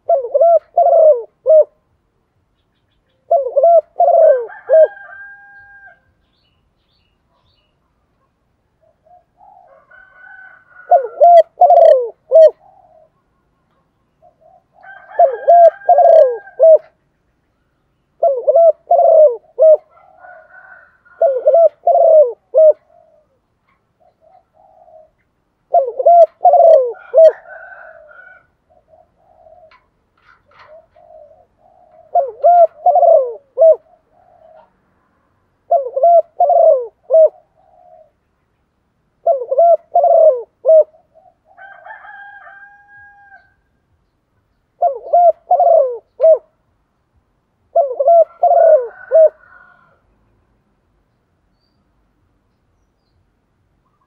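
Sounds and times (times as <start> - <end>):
dove cooing: 0.0 - 1.9, 3.1 - 6.0, 8.8 - 17.0, 18.2 - 38.2, 39.2 - 43.6, 44.8 - 46.6, 47.6 - 50.0
fainter bird calls: 2.5 - 38.6.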